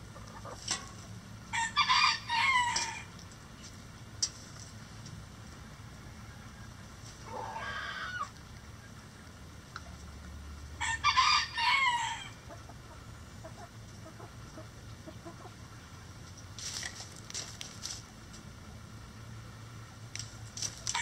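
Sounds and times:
rooster crowing: 1.5 - 3.1, 7.3 - 8.3, 10.8 - 12.4
chicken call: 7.2 - 8.4
soft clucking: 12.3 - 17.8.

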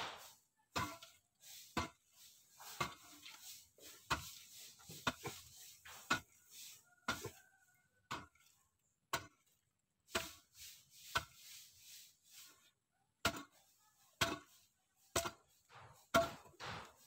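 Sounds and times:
blade chopping into soil: 0.0 - 0.3.

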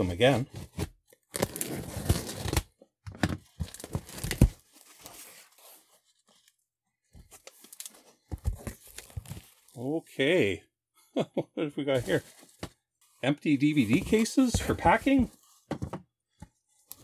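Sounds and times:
cardboard box being opened: 0.5 - 2.6, 3.4 - 6.0, 13.7 - 15.5
paper rustling: 12.0 - 15.6.

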